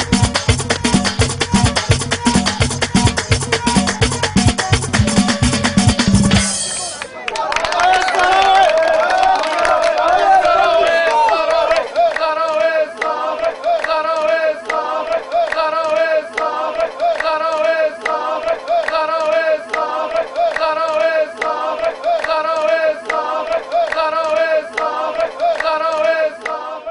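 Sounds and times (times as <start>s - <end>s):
steady percussion beat: 0.0s - 7.1s
voices singing folk song: 10.2s - 26.9s.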